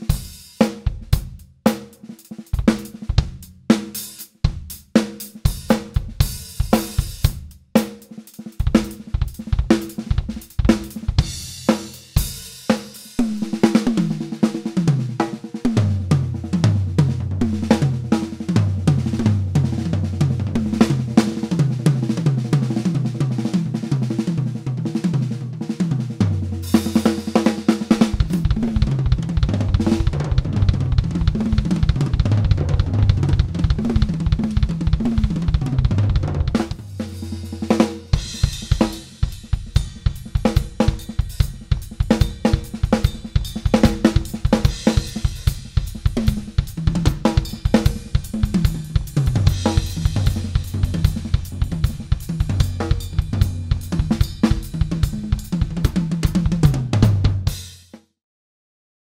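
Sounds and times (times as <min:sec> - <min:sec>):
cymbals and hi-hat: 0:00.0 - 0:16.0, 0:26.4 - 0:30.2, 0:36.5 - 0:56.8
fast bass drum strokes: 0:00.0 - 0:58.0
drum fills on toms: 0:00.0 - 0:58.2.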